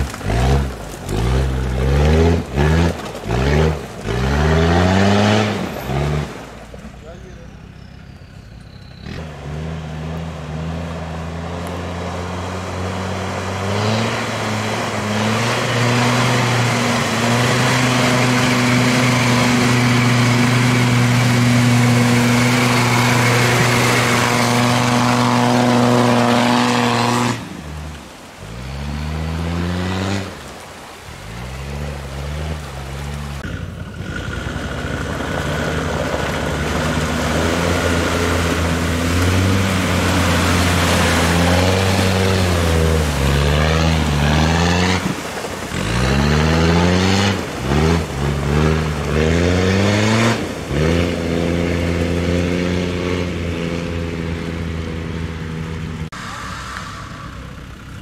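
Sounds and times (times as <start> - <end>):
diesel engine revving: 0.0 - 58.0
mud and water splashing: 0.0 - 58.0.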